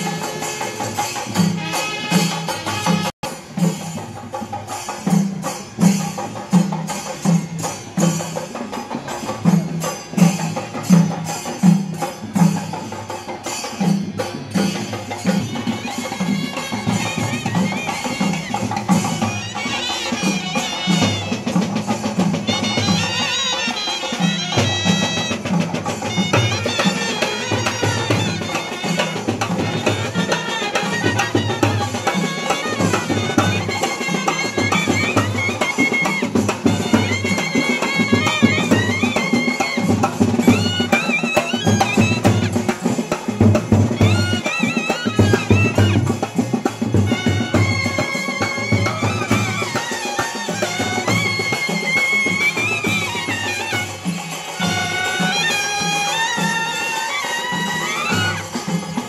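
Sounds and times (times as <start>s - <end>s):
trumpets and clarinets melody: 0.0s - 3.4s, 15.4s - 43.1s, 43.8s - 59.0s
drums keeping a steady beat: 0.0s - 59.0s.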